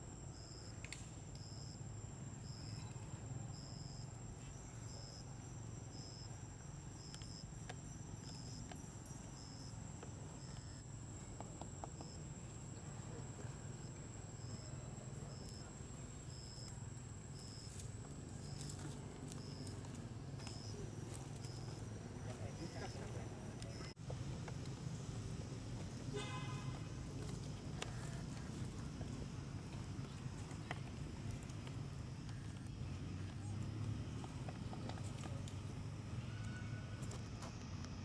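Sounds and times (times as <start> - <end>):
insect chirping: 0.0 - 24.0
high-pitched insect whine: 1.4 - 24.0.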